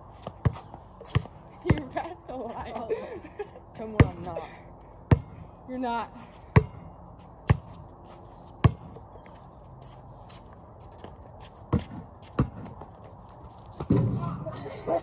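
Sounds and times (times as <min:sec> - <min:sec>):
basketball bouncing on concrete: 0:00.2 - 0:02.8, 0:03.8 - 0:04.4, 0:05.1 - 0:05.4, 0:06.5 - 0:07.8, 0:08.6 - 0:09.0, 0:11.7 - 0:14.4.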